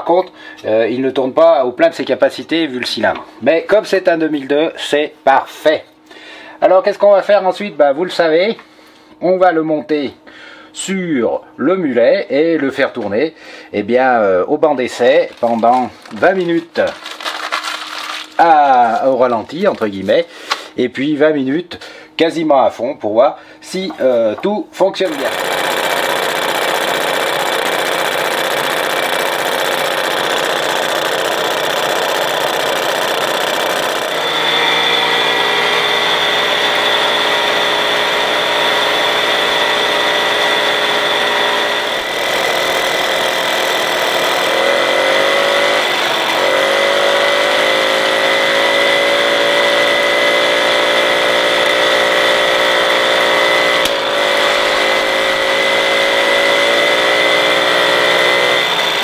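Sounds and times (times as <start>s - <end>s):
moped engine running: 25.1s - 59.0s.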